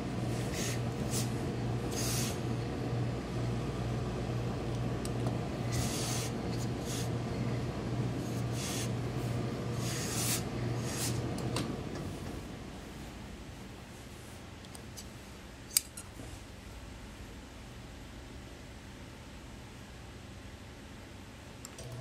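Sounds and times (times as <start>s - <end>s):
steady low hum: 0.0s - 22.0s
steam iron hissing: 0.3s - 2.5s, 5.6s - 7.2s, 8.2s - 9.0s, 9.7s - 11.2s.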